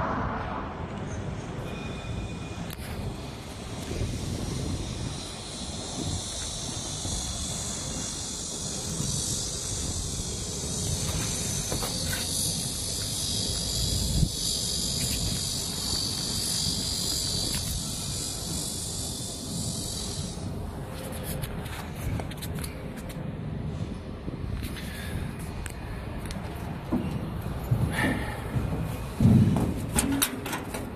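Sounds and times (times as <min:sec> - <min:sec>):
high-pitched insect drone: 0:01.6 - 0:22.8.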